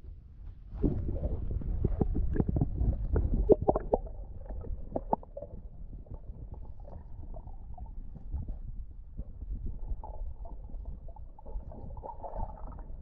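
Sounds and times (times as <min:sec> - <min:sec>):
underwater rumble of moving water: 0:00.0 - 0:13.0
underwater clicks and knocks: 0:00.8 - 0:06.7.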